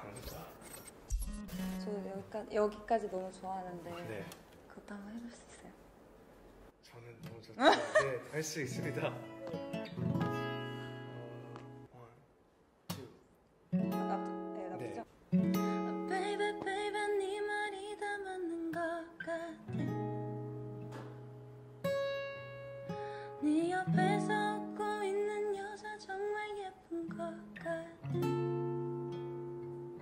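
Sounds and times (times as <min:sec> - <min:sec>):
acoustic guitar: 0:00.0 - 0:02.4, 0:08.4 - 0:11.9, 0:13.7 - 0:30.0.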